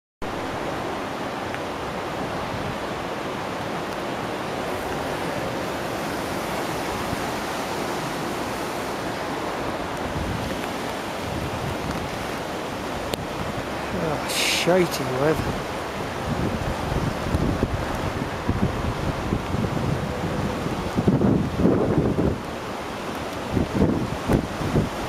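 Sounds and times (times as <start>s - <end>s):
floodwater rushing: 0.2s - 25.0s
wind buffeting microphone: 0.4s - 25.0s.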